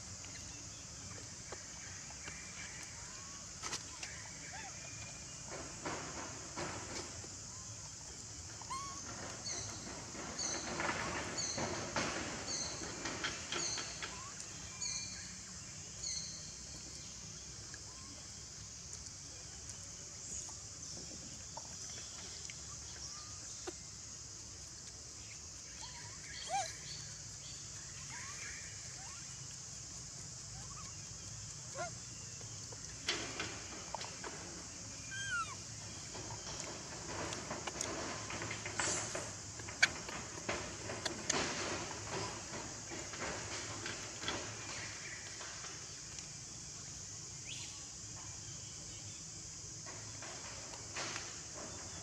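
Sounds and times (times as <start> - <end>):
steady high hiss: 0.0 - 52.0
brief squeaks: 8.6 - 9.8.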